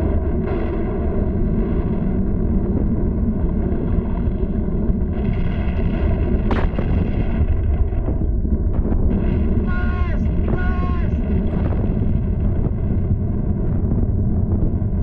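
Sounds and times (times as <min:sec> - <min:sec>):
cartoon volcano rumble: 0:00.0 - 0:15.0.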